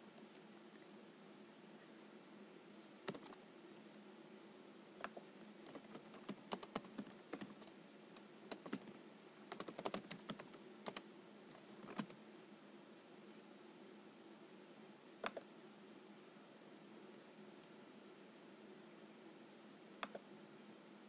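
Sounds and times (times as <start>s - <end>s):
keyboard typing: 3.0s - 3.4s, 5.0s - 12.2s.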